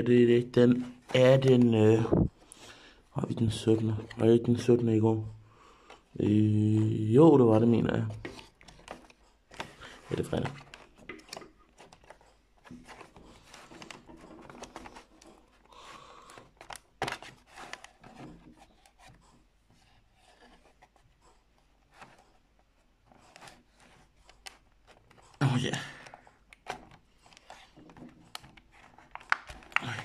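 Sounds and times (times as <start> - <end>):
soft crinkles: 0.0 - 30.0
fingers scraping cardboard: 16.6 - 25.4.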